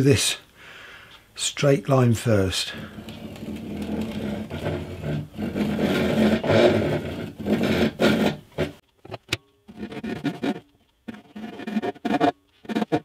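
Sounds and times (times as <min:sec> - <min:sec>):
hand saw cutting wood: 0:02.8 - 0:08.8, 0:09.7 - 0:13.0.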